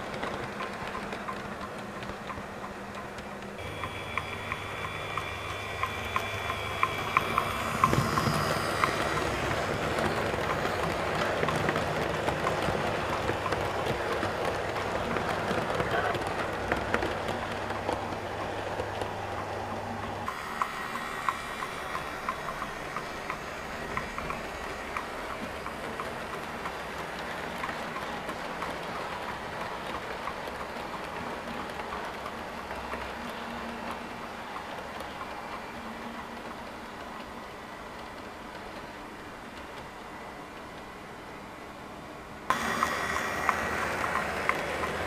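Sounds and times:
wheels clicking over rail joints: 0.0 - 40.9, 42.5 - 45.0
model train wheels rumbling: 0.0 - 41.3, 42.4 - 45.0
low steady hum: 3.6 - 11.1.

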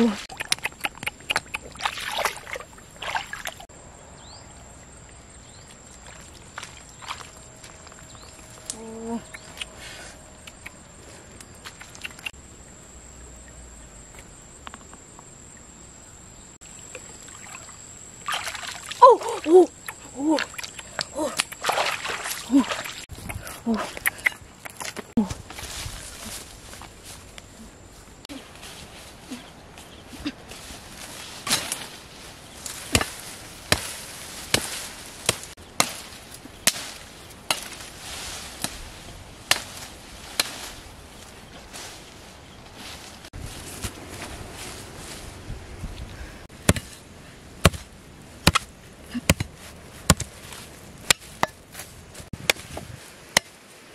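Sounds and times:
hands splashing in muddy water: 0.0 - 3.6, 18.2 - 19.5, 20.4 - 23.1
knife chopping wooden branch: 32.8 - 37.8, 39.5 - 40.7.

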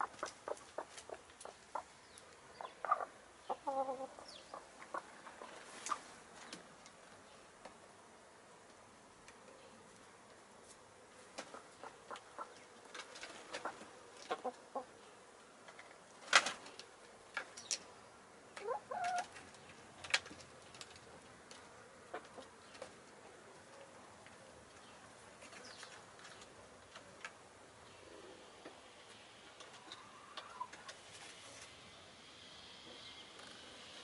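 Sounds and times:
hen clucking: 0.0 - 1.9, 2.5 - 6.1, 11.5 - 12.6, 13.6 - 15.0, 18.6 - 19.4, 29.8 - 30.9.

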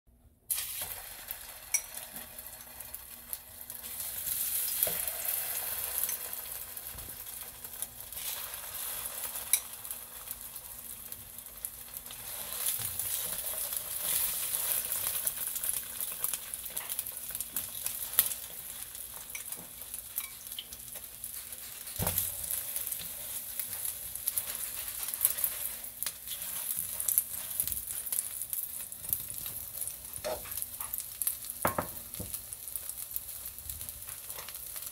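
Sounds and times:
slices frying in oil sizzling: 0.5 - 34.9
tongs clicking against pan: 9.4 - 9.8, 19.2 - 22.2.

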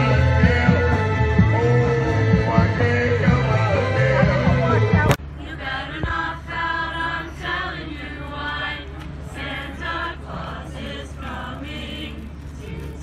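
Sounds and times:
choir singing: 0.0 - 13.0.

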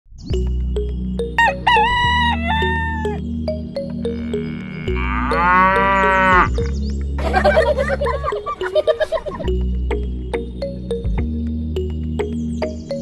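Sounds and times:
background music with ticking beat: 0.2 - 13.0
farm animal call: 1.4 - 3.2, 4.1 - 6.6
rooster crowing: 1.4 - 3.2.

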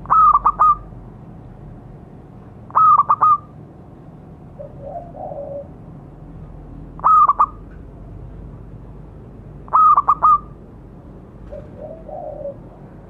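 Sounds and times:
dove cooing: 0.0 - 0.9, 2.7 - 3.5, 4.6 - 5.8, 7.0 - 7.6, 9.7 - 10.6, 11.4 - 13.0.

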